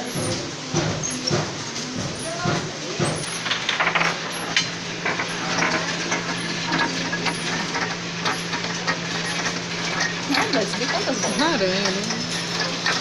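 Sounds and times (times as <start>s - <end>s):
steady machine hum: 0.0s - 13.0s
balls clicking and rattling on pins: 3.0s - 13.0s.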